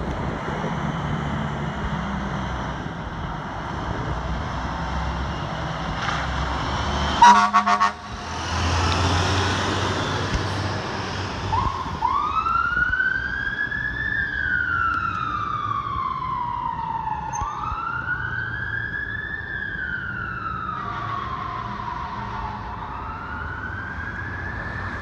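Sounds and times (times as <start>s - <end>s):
rescue truck engine running: 0.0s - 25.0s
siren wailing: 11.5s - 25.0s.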